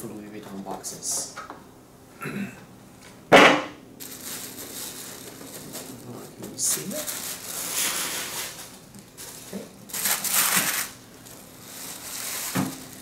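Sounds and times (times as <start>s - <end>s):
tissue paper rustling: 4.0s - 13.0s.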